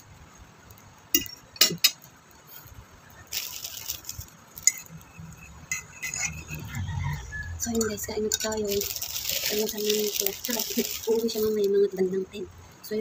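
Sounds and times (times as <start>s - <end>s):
spoon clinking against plate: 4.6s - 6.7s.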